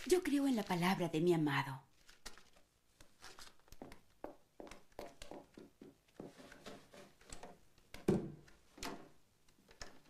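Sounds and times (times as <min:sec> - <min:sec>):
clothing rustling: 0:01.9 - 0:10.0
faint footsteps: 0:03.0 - 0:07.2.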